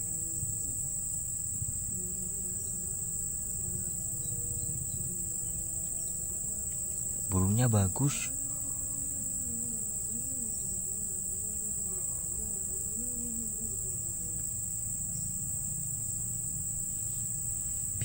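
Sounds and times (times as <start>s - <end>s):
faint wavering low sound: 0.0s - 18.0s
insects chirring: 0.0s - 18.0s.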